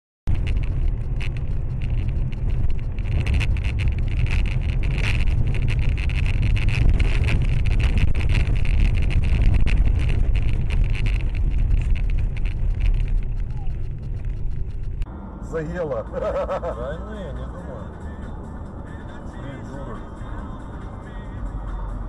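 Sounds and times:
sharp clicks and rattles: 0:00.3 - 0:15.1
road and engine rumble: 0:00.3 - 0:22.0.

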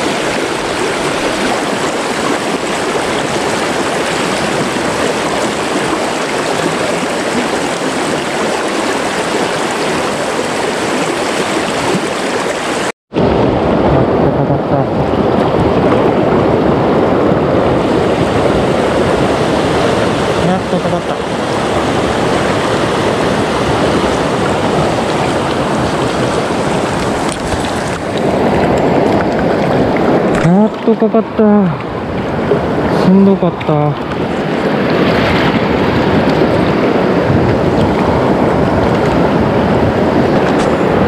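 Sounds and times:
river rapids rushing over rocks: 0:00.0 - 0:12.9, 0:17.8 - 0:41.0.

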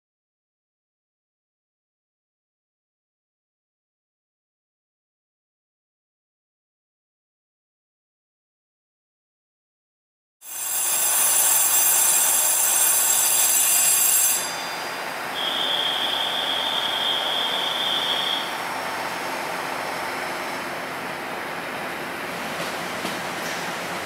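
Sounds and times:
train wheel squeal: 0:10.4 - 0:19.3
rushing rail noise: 0:10.4 - 0:24.0
high steady tone: 0:10.6 - 0:20.8.

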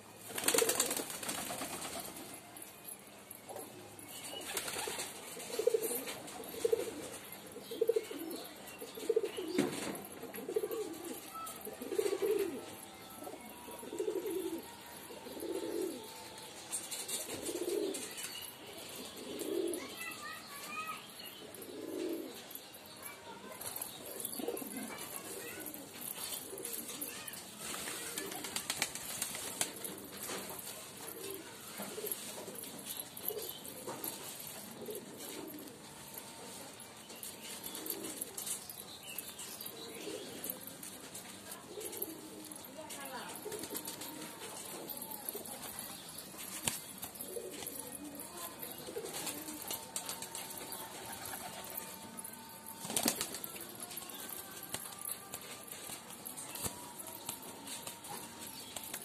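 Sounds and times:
pigeons cooing: 0:00.3 - 0:01.2, 0:04.4 - 0:58.2
wings flapping: 0:00.3 - 0:02.3, 0:27.6 - 0:31.4, 0:52.8 - 0:58.2
beaks pecking grain: 0:36.5 - 0:51.9.

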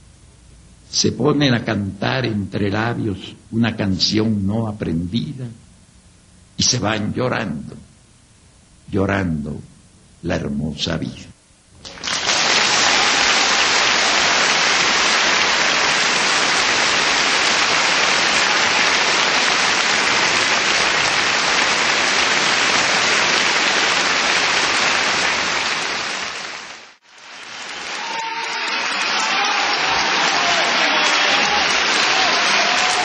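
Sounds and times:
audience applauding: 0:11.8 - 0:33.0.

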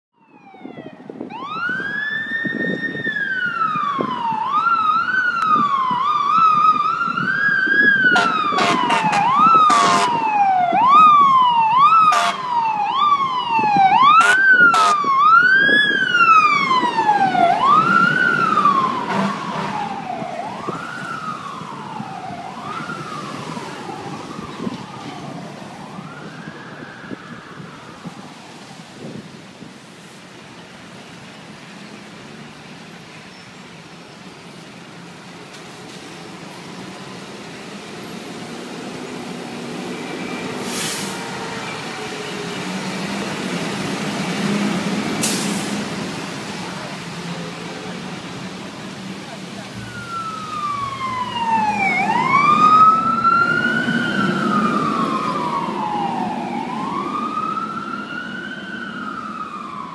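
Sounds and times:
fire engine siren wailing: 0:00.1 - 0:30.1, 0:34.5 - 0:59.9
horn blasts: 0:08.2 - 0:10.2, 0:12.1 - 0:12.4, 0:14.2 - 0:15.0.

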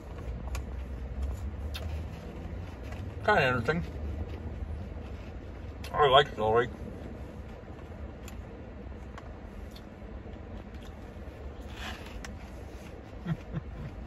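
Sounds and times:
low car cabin hum: 0:00.0 - 0:14.0
chewing crunch: 0:01.7 - 0:02.0.

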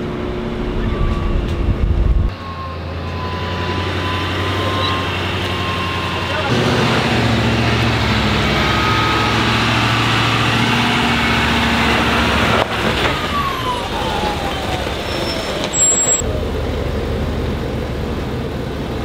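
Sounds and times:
falling whine: 0:00.0 - 0:06.4
diesel pickup engine under load: 0:00.0 - 0:19.0.

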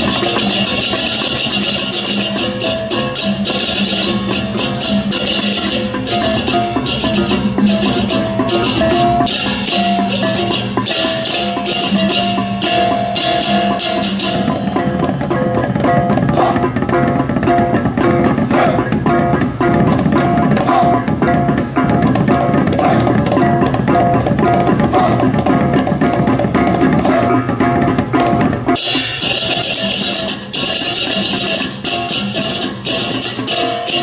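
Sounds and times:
hand cymbals crashing: 0:00.0 - 0:16.6, 0:28.7 - 0:34.0
gongs: 0:00.0 - 0:34.0
hand drums: 0:00.0 - 0:34.0.

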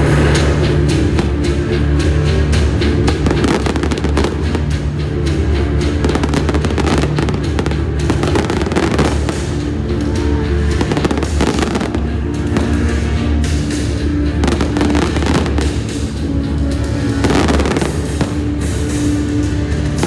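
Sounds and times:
fireworks bursting and crackling: 0:00.0 - 0:20.0
loud music with low notes: 0:00.0 - 0:20.0.

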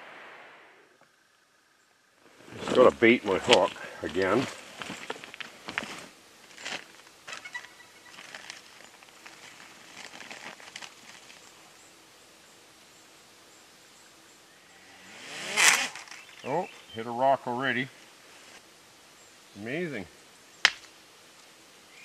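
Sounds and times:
shifting on stones: 0:02.4 - 0:11.4.

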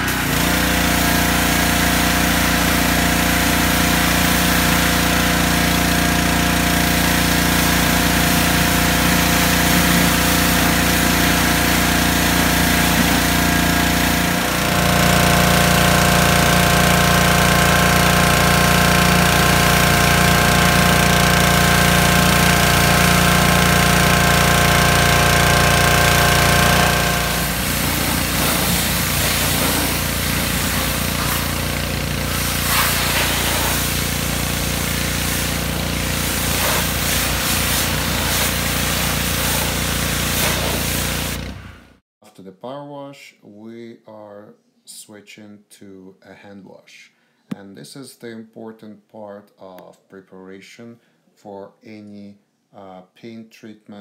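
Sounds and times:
water spraying onto car: 0:00.0 - 0:41.6
pressure washer engine running: 0:00.0 - 0:42.0.

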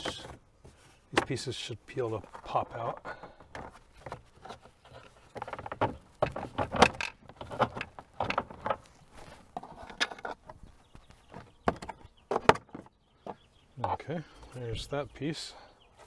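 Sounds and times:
plastic trim panels clicking and rattling: 0:02.7 - 0:08.9.

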